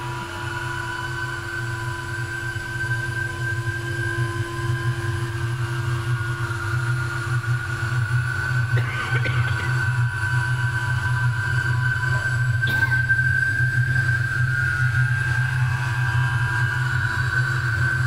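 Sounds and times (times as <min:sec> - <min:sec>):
low droning hum: 0:00.0 - 0:18.0.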